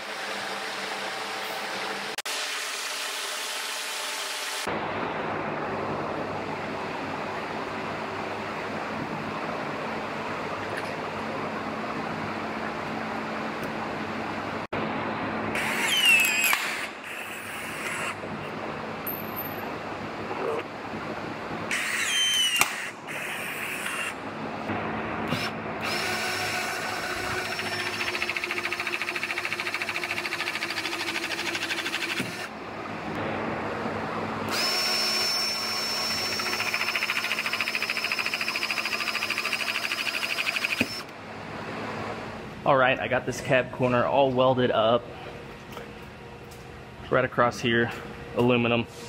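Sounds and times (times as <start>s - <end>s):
rivet tool motor whining: 21.7s - 24.1s, 25.3s - 32.5s, 34.6s - 41.1s
rivet tool pulsing motor: 25.4s - 32.5s, 34.5s - 41.1s.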